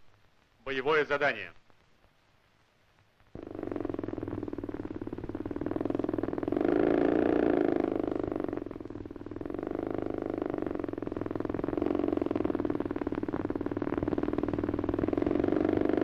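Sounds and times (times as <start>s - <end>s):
motorcycle engine running: 3.4s - 16.0s.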